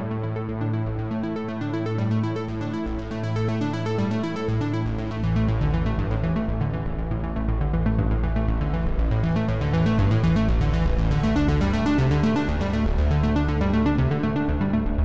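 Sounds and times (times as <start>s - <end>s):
electronic music with synth bass: 0.0s - 15.0s.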